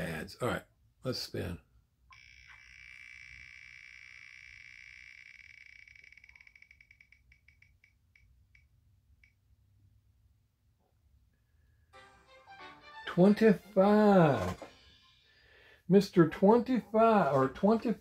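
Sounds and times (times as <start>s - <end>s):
spinning wheel ticks from phone: 2.1s - 9.4s.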